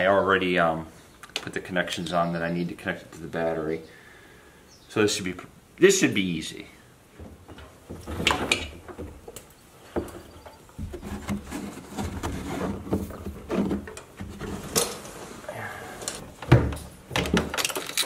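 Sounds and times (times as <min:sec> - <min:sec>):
hands knocking and scraping plastic: 0:07.2 - 0:15.1, 0:16.0 - 0:18.0.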